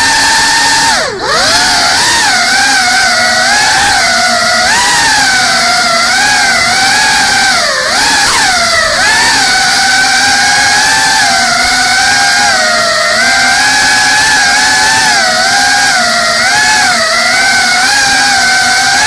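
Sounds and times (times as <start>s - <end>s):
drone motors whining: 0.0s - 19.0s.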